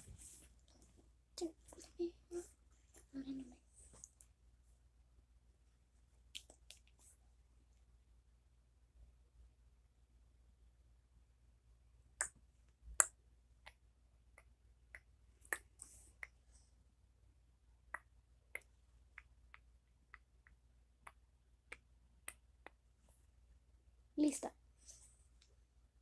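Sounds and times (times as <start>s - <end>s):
soft hiss: 0.0s - 5.0s.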